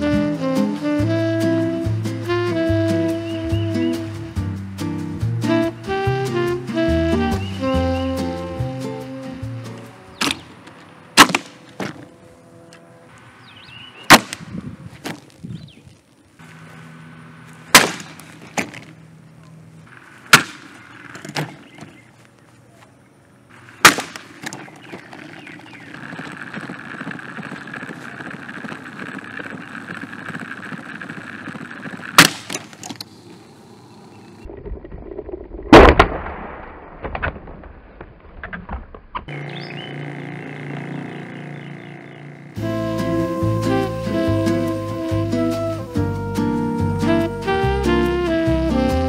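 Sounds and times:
steady noise: 16.0 - 21.4
plastic fan cracking: 17.8 - 19.0, 23.8 - 33.1.

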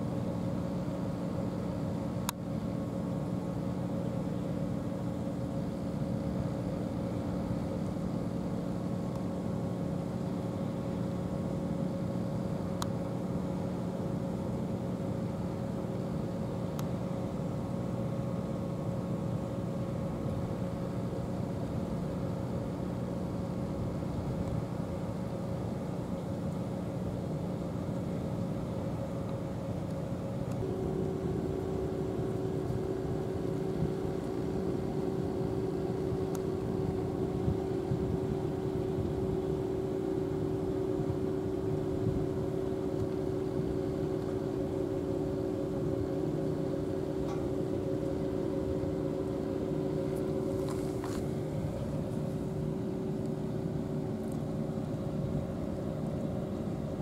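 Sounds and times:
engine droning: 12.1 - 57.0
humming tone: 30.5 - 57.0.

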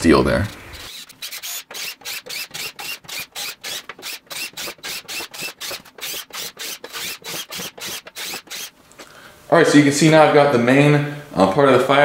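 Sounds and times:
drill rasping through metal: 0.8 - 8.8.

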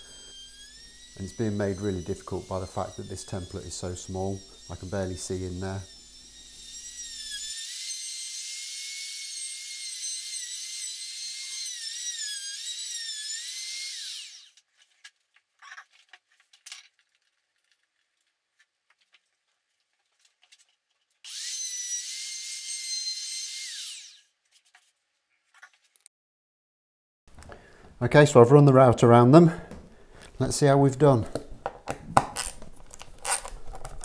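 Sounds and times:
trim router whining: 0.0 - 14.6, 21.3 - 24.2.

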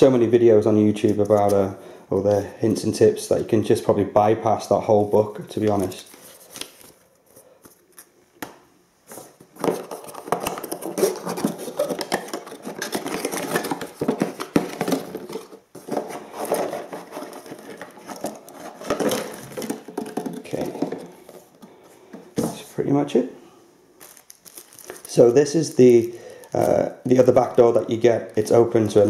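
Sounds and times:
cardboard box rustling: 9.1 - 21.5
plastic bags crinkling: 9.1 - 21.8, 24.0 - 27.6.

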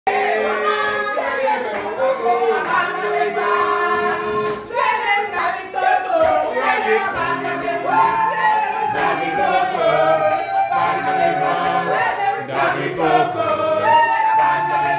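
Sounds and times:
group singing: 0.1 - 14.9
hand claps: 2.6 - 2.9, 4.4 - 4.7, 13.4 - 14.9.

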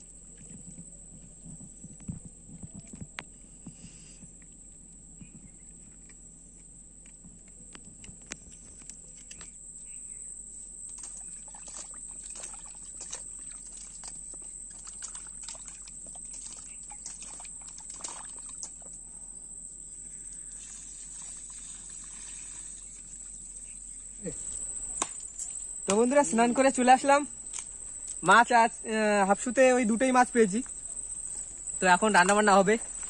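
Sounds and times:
high insect buzz: 0.0 - 33.0
hands rinsing fish in metal bowl: 11.0 - 18.9.

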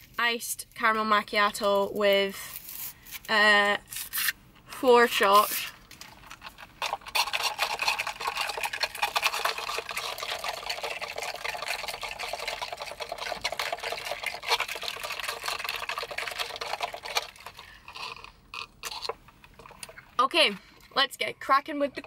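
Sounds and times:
ice cubes rattling in cup: 5.1 - 20.2.

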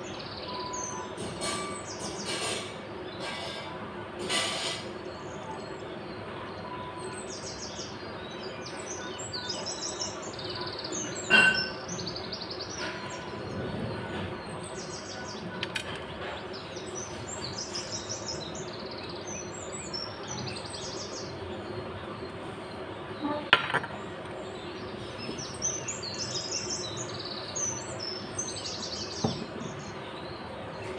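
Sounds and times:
low background hum: 0.0 - 30.9
small birds chirping: 0.0 - 30.9.

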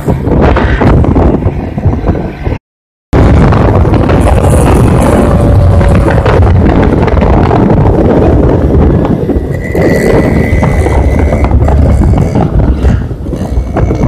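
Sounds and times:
wind noise on microphone: 0.0 - 14.0
motorcycle engine: 3.5 - 14.0.

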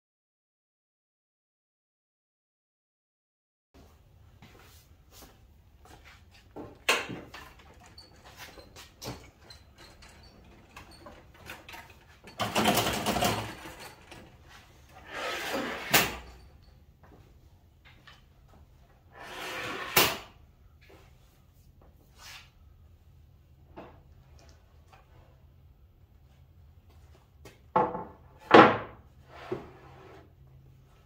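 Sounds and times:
wooden parts scraping as slid: 12.7 - 16.3, 19.1 - 20.2.

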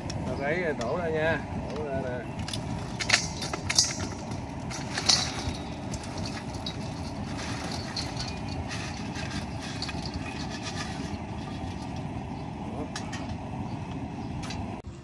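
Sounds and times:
steady low rumble: 0.0 - 15.0
crawfish shells clattering: 2.4 - 12.1.

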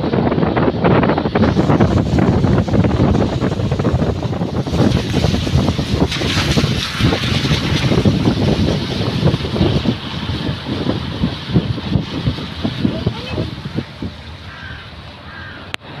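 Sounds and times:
car road noise: 0.0 - 16.0
wind buffeting microphone: 0.0 - 16.0.

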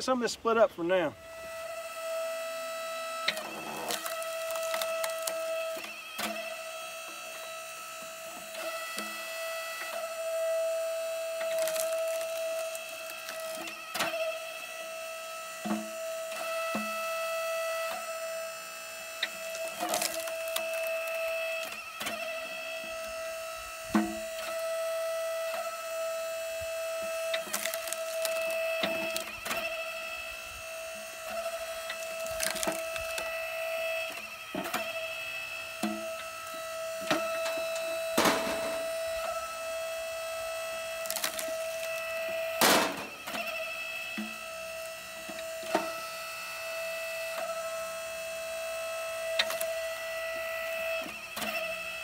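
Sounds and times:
log splitter humming: 0.0 - 52.0
wood cracking and knocking: 3.8 - 5.4, 11.4 - 13.6, 19.5 - 20.9, 27.4 - 29.2, 31.9 - 33.2, 41.0 - 42.0.

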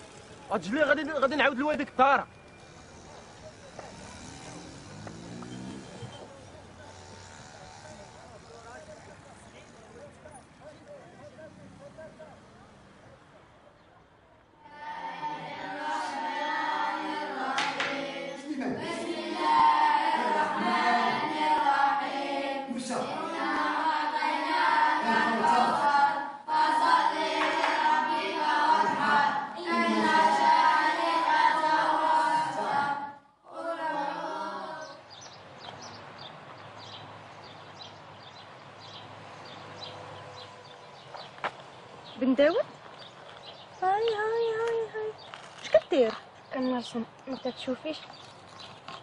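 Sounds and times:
boys chanting in unison: 14.6 - 35.3.

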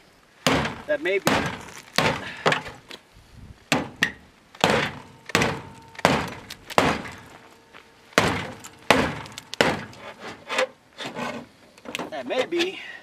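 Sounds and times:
tomahawk striking sheet metal: 0.4 - 2.8, 3.7 - 7.4, 8.2 - 10.7.

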